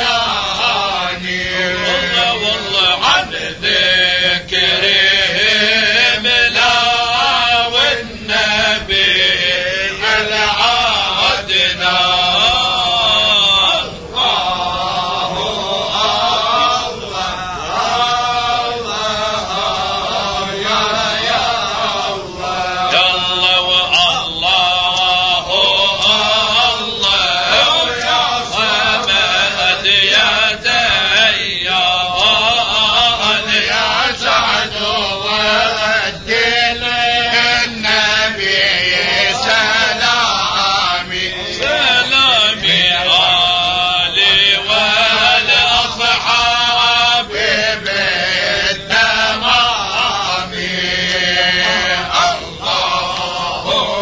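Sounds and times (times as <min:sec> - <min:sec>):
men chanting: 0:00.0 - 0:54.0.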